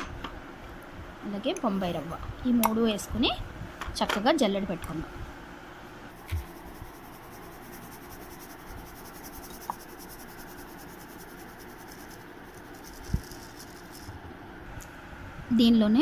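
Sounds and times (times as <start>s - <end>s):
sieve rustling flour: 6.1s - 14.1s.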